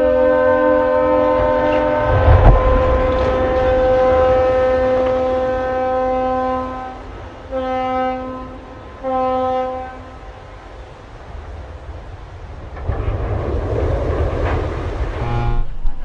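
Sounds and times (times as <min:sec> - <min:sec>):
ship's horn blasts: 0:00.0 - 0:10.6, 0:15.0 - 0:16.0
hull splashing into water: 0:01.5 - 0:07.1.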